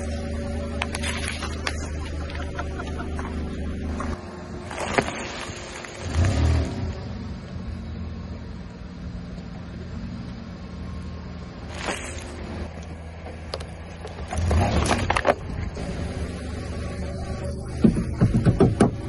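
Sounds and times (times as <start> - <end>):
car engine running: 0.0 - 19.0
plastic bottle crushed by tyre: 4.7 - 6.6, 14.3 - 15.5
brief crackle: 11.7 - 12.4.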